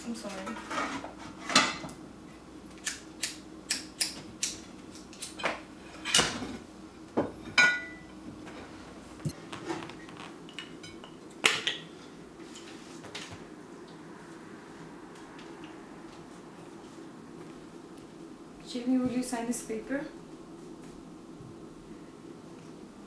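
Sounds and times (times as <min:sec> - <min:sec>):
dishes and utensils clinking: 0:07.4 - 0:08.1.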